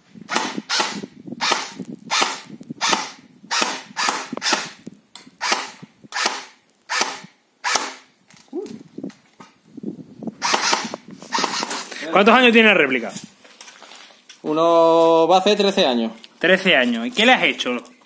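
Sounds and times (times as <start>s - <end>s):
airsoft rifle shots snapping: 0.3s - 4.8s, 5.4s - 8.1s, 10.4s - 11.8s.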